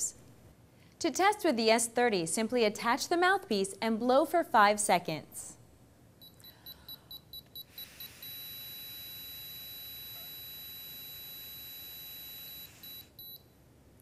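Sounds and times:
breathalyzer beeping: 6.2 - 13.4.

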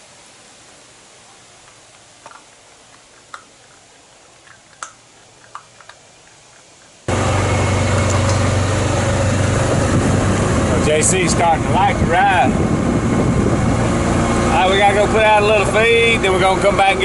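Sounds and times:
faint outdoor hiss: 0.0 - 17.0
utility vehicle engine running: 7.1 - 17.0.

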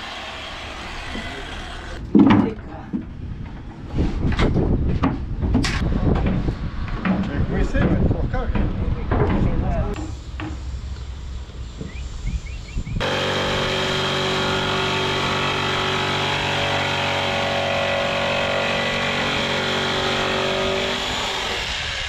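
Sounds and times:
electric jigsaw cutting plywood: 0.0 - 2.0, 13.0 - 22.0
low outdoor background: 0.0 - 22.0.

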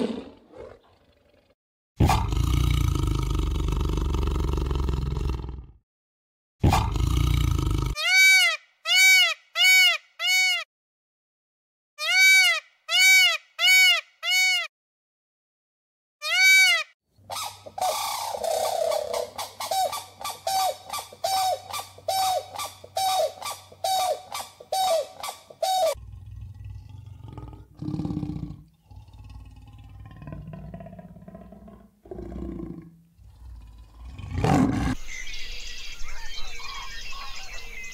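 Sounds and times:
peacock honking calls: 12.0 - 14.7, 16.2 - 26.0.

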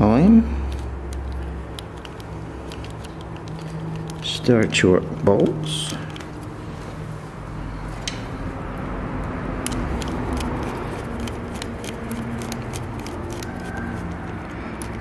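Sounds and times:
small metallic clicks and taps: 9.6 - 13.5.

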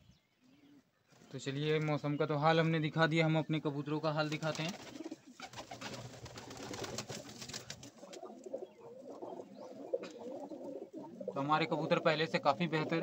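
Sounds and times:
pigeons cooing: 4.6 - 13.0.

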